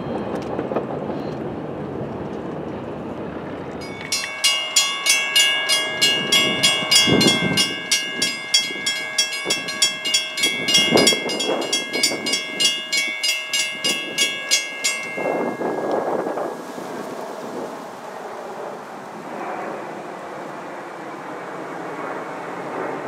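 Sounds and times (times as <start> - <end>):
crossing warning bell ringing: 3.8 - 16.6.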